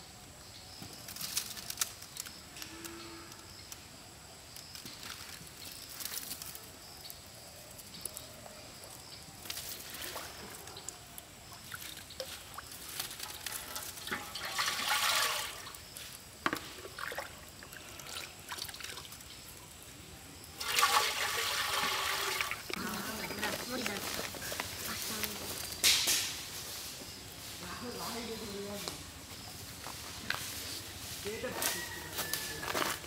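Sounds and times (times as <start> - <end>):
water splashing: 11.4 - 15.9, 20.6 - 23.5
water pouring into metal pot: 11.4 - 16.0, 20.6 - 23.4.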